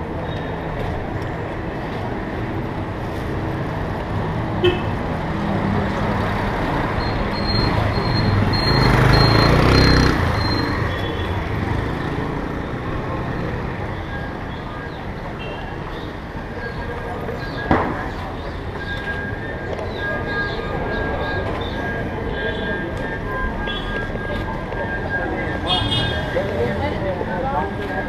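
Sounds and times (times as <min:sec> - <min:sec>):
steady traffic noise: 0:00.0 - 0:28.0
vehicle passing close: 0:05.6 - 0:13.8.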